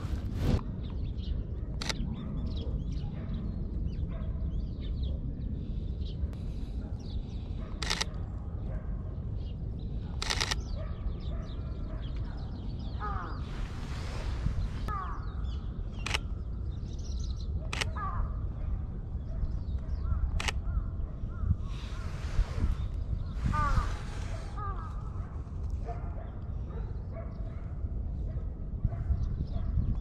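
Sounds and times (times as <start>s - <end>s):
steady low rumble: 0.0s - 11.6s, 12.2s - 27.0s
camera shutter clicks: 7.8s - 8.2s, 10.2s - 10.6s, 20.3s - 20.6s.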